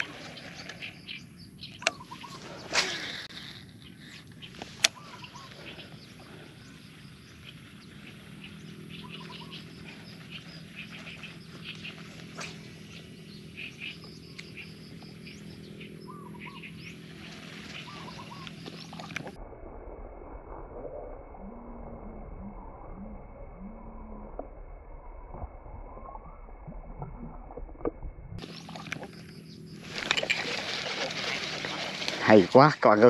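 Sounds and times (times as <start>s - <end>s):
birds chirping: 0.0s - 19.4s, 28.4s - 33.0s
steady low hum: 0.0s - 33.0s.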